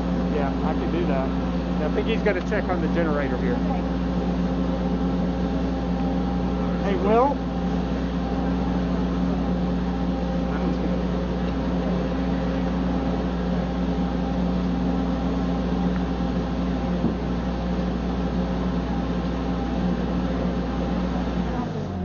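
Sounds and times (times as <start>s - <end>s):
engine running steadily: 0.0s - 22.0s.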